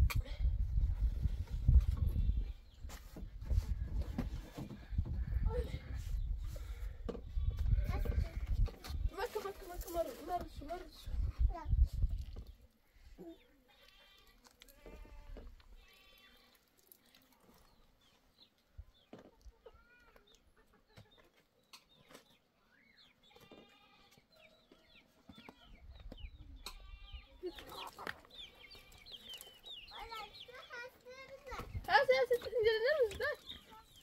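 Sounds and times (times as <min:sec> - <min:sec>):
goats bleating: 0:13.7 - 0:16.6
hens clucking: 0:19.2 - 0:21.5, 0:25.2 - 0:30.8.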